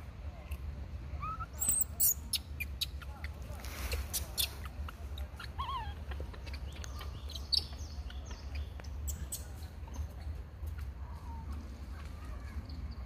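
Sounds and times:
monkey wavering squeak: 1.2 - 3.0, 4.1 - 7.8.

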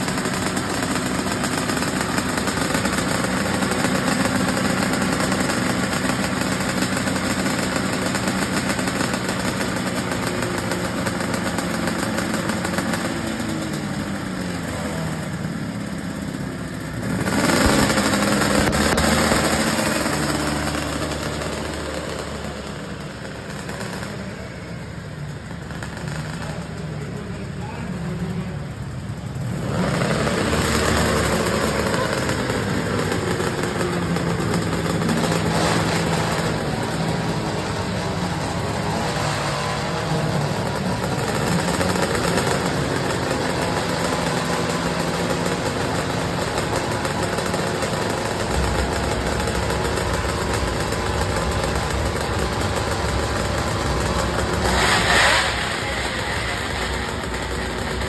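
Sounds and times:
pulling tractor engines idling: 0.0 - 58.0.

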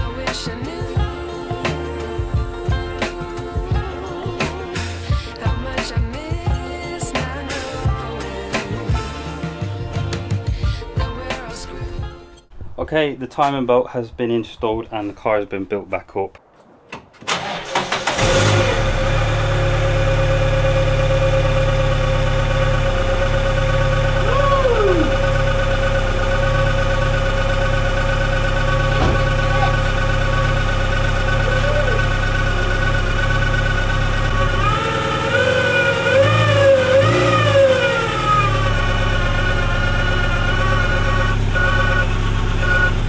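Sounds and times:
car engine idling: 17.3 - 43.0.

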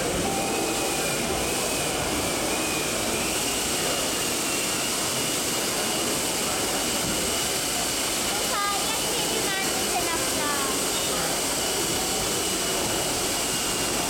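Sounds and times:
faint high whine: 0.0 - 5.2
exhibition hall background roar: 0.0 - 14.0.

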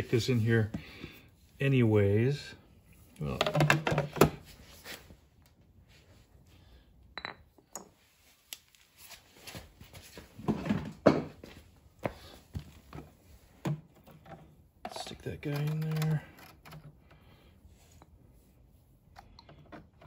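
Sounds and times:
plastic clicks and knocks: 3.4 - 4.3.

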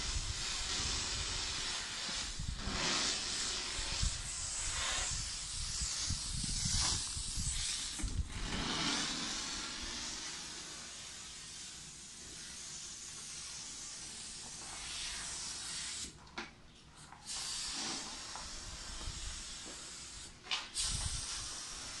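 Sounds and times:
cleaning machine hissing: 0.0 - 16.2, 17.2 - 22.0.

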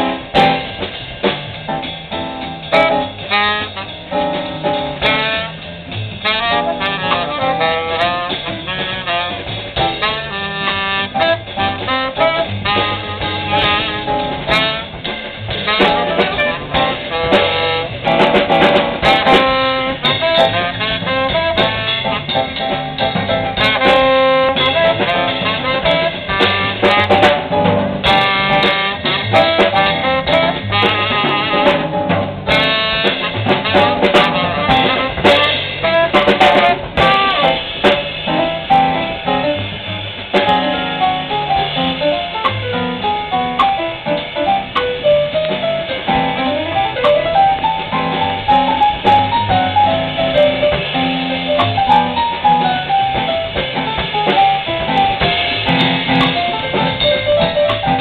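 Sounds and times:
jazz band playing swing: 0.0 - 58.0
tenor saxophone melody: 2.7 - 4.1, 5.0 - 22.8, 23.4 - 39.5.

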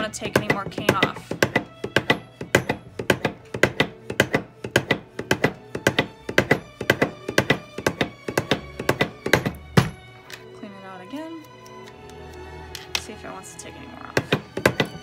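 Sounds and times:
carriage knocking: 0.2 - 10.4, 14.1 - 15.0.

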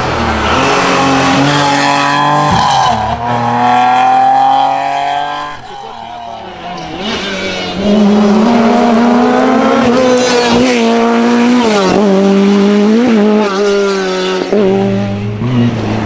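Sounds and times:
rally car engine revving: 0.0 - 16.0.

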